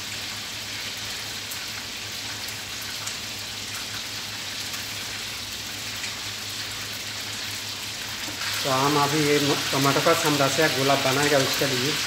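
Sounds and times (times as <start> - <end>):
steady hissing noise: 8.2 - 12.0.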